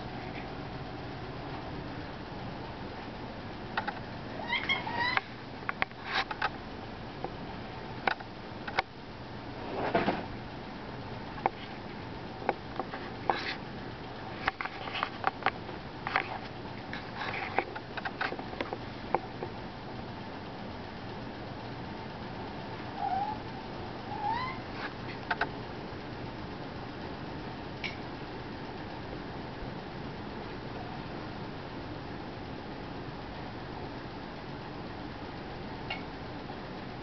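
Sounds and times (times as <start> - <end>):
background hiss: 0.0 - 37.0
squeaky pitched sound: 24.1 - 24.7.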